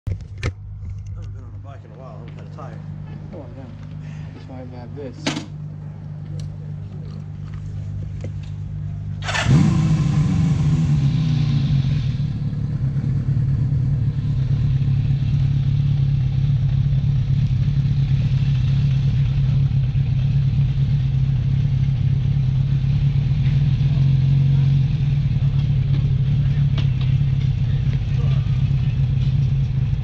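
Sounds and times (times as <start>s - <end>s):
motorcycle engine running: 2.0s - 30.0s
engine revving: 9.2s - 16.5s.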